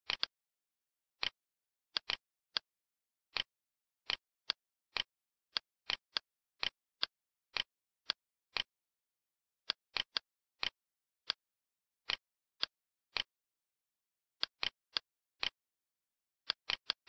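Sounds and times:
computer mouse clicking: 0:00.1 - 0:00.3, 0:02.0 - 0:02.7.

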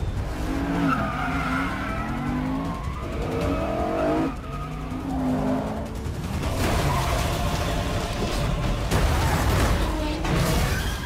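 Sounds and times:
engines revving hard: 0:00.0 - 0:10.7
metal crash and breaking glass: 0:06.2 - 0:11.0.

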